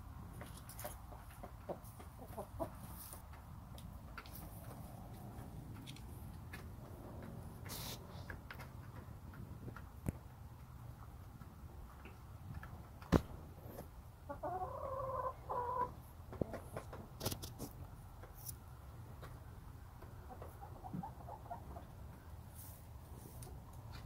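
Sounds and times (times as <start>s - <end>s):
hen clucking: 0.4s - 3.4s, 14.2s - 17.2s, 19.2s - 22.4s.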